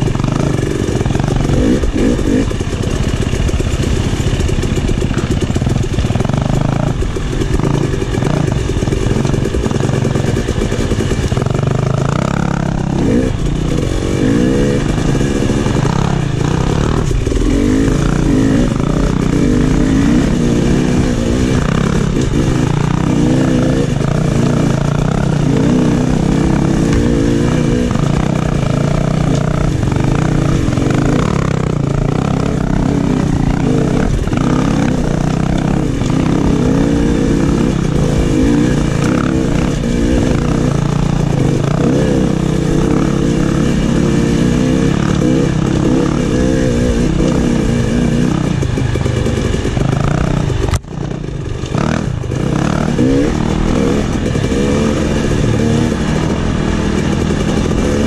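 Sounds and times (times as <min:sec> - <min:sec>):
knocks and clatter from bike: 0:00.0 - 0:14.0
dirt bike engine revving: 0:00.0 - 0:58.0.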